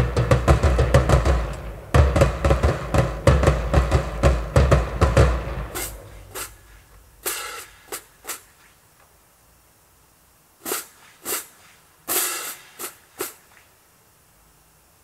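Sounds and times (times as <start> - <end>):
marching drumline cadence: 0.0 - 8.7, 10.6 - 13.6
short sharp noise bursts: 0.0 - 9.0, 10.3 - 14.2.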